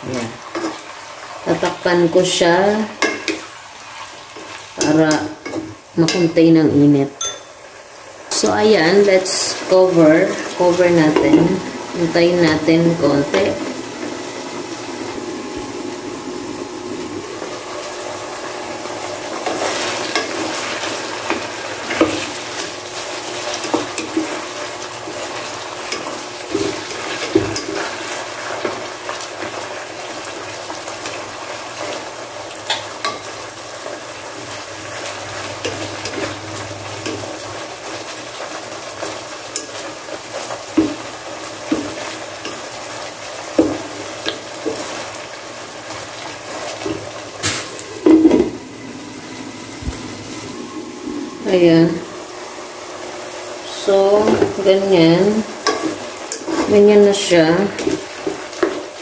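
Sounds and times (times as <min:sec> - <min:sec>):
food sizzling in oil: 0:00.0 - 0:59.0
wooden spatula scraping pan: 0:53.9 - 0:58.9.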